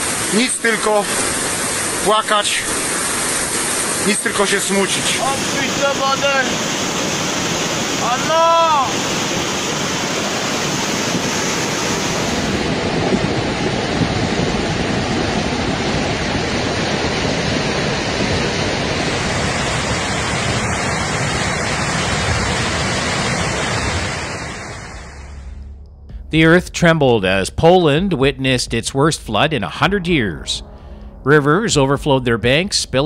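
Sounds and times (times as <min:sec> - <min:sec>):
floodwater rushing: 0:00.0 - 0:25.4.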